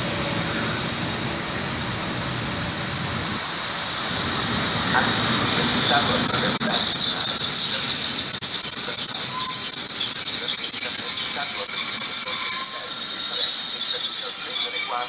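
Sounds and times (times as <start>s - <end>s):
train wheels rumbling: 0.0s - 15.0s
high-pitched squeal: 3.6s - 15.0s.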